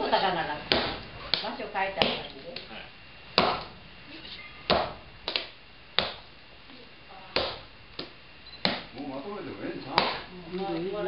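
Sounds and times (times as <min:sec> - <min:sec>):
mallet pounding rice dough: 0:00.7 - 0:02.2, 0:03.4 - 0:03.7, 0:04.7 - 0:06.3, 0:07.3 - 0:08.9, 0:10.0 - 0:10.3
hand slapping dough: 0:00.7 - 0:02.7, 0:03.4 - 0:03.8, 0:04.7 - 0:06.3, 0:07.3 - 0:09.0, 0:09.9 - 0:10.3.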